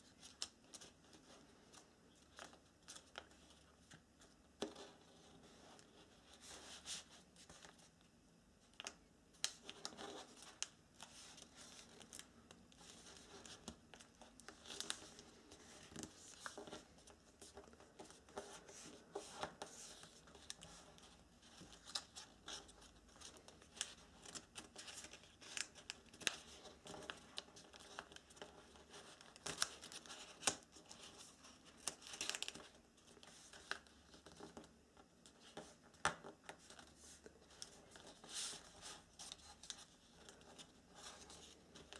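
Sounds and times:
paper rustling and crinkling: 0:08.8 - 0:41.9.

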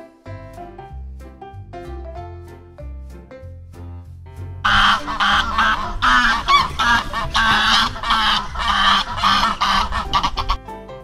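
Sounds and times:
goose honking: 0:04.7 - 0:10.6.

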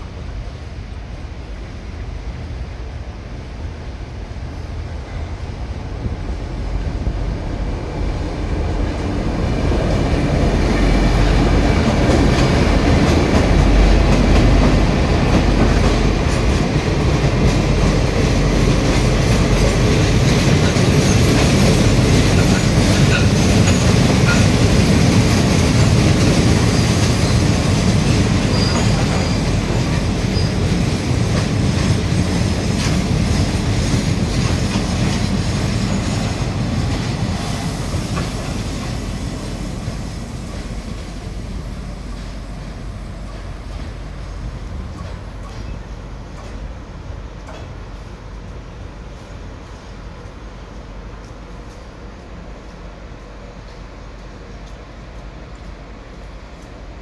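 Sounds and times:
freight train rolling past: 0:00.0 - 0:57.0
wheels clattering over rail joints: 0:11.6 - 0:37.3
wheel squeals: 0:28.4 - 0:29.6, 0:30.3 - 0:30.6.

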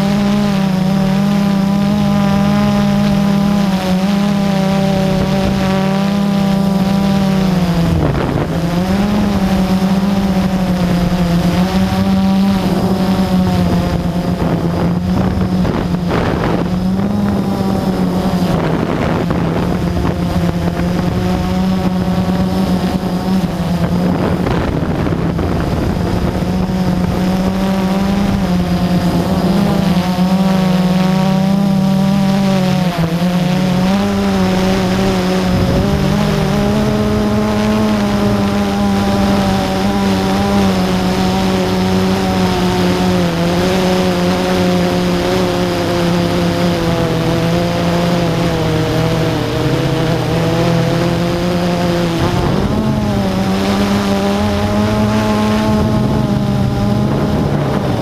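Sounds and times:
quadcopter motors humming and whining: 0:00.0 - 0:58.0.

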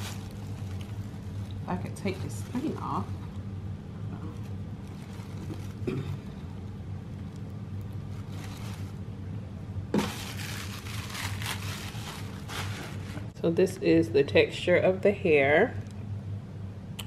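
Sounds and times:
soft rustling of packaging: 0:00.0 - 0:09.1, 0:10.0 - 0:13.4
steady low hum: 0:00.0 - 0:17.0.

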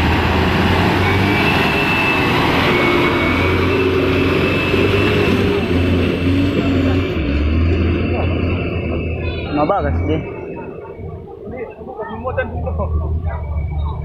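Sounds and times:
truck diesel engine under load: 0:00.0 - 0:14.0.

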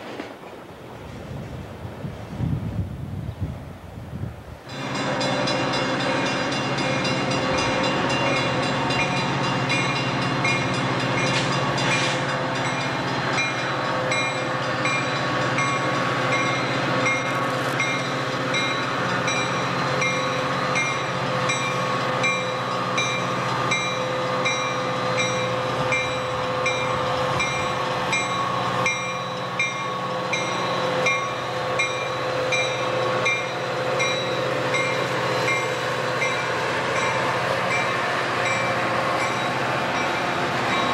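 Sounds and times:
diesel locomotive engine running: 0:04.6 - 0:40.9
locomotive bell ringing: 0:04.7 - 0:40.9.

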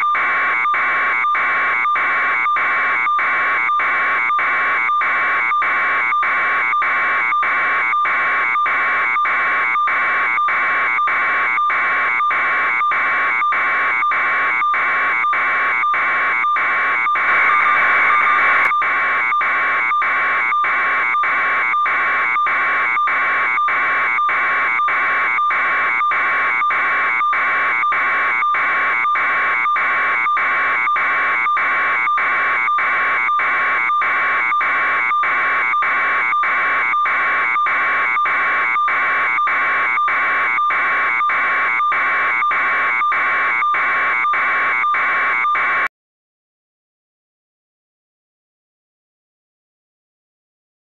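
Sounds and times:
high electronic alarm beeping: 0:07.3 - 0:45.8.

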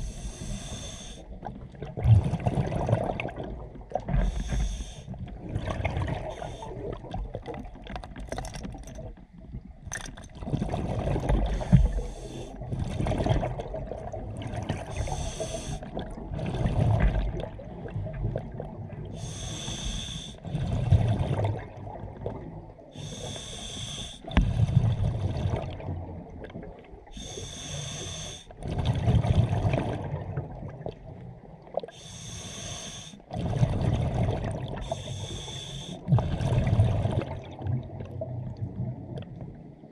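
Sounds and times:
diver inhaling through regulator: 0:00.0 - 0:01.4, 0:04.2 - 0:05.1, 0:06.2 - 0:06.8, 0:11.4 - 0:12.6, 0:14.8 - 0:15.9, 0:19.1 - 0:20.4, 0:23.0 - 0:24.8, 0:27.1 - 0:28.6, 0:31.9 - 0:33.3, 0:34.8 - 0:36.6
exhaled bubbles rumbling: 0:00.0 - 0:19.3, 0:20.4 - 0:22.9, 0:24.2 - 0:27.3, 0:28.5 - 0:32.0, 0:33.3 - 0:39.9.

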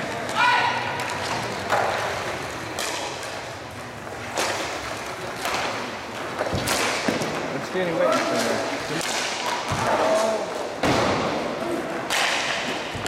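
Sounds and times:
hockey sticks knocking puck: 0:00.1 - 0:13.0
puck hitting rink boards: 0:00.1 - 0:13.0.

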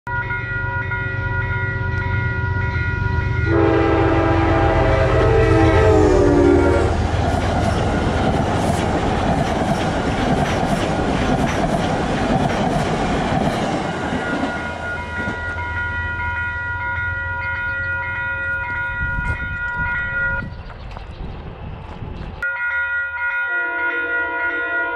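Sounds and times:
train engine rumble: 0:00.1 - 0:22.4
train horn: 0:03.4 - 0:07.1, 0:23.5 - 0:24.9
train wheels clicking over rail joints: 0:07.0 - 0:15.6.

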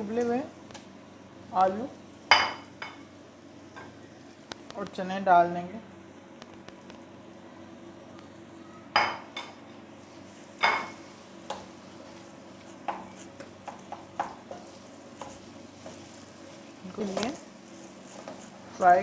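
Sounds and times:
faint steady hum: 0:00.0 - 0:19.0
spatula tapping and scraping pan: 0:10.6 - 0:16.2, 0:17.0 - 0:18.6
spatula knocking on pan: 0:12.8 - 0:16.0.

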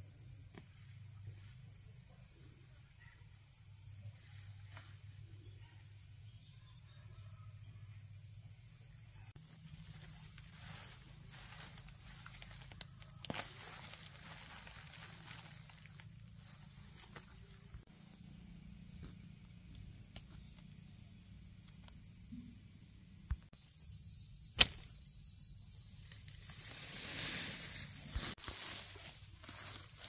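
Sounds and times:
insects chirping: 0:00.0 - 0:30.0
sharp click: 0:24.5 - 0:24.9.

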